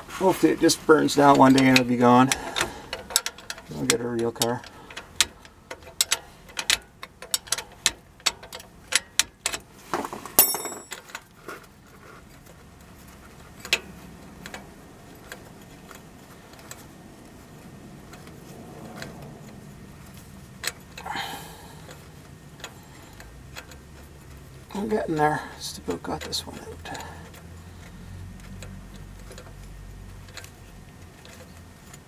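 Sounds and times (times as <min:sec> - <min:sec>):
handling of metal parts: 0:00.0 - 0:32.0
metallic clatter: 0:00.0 - 0:32.0
wrench clicking on bolt: 0:01.3 - 0:11.8, 0:12.4 - 0:16.9, 0:18.1 - 0:32.0.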